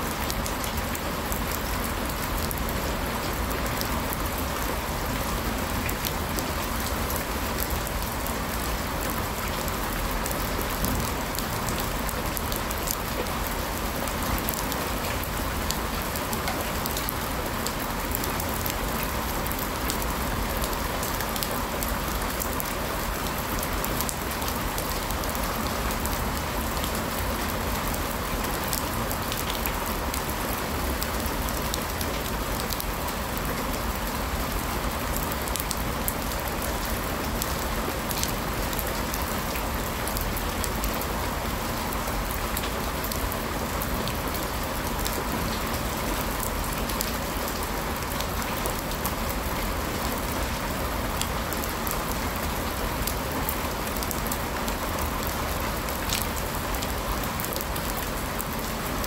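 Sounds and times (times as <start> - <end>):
steady rain hiss: 0.0 - 59.0
faint raindrop ticks: 0.2 - 33.8, 53.0 - 58.7.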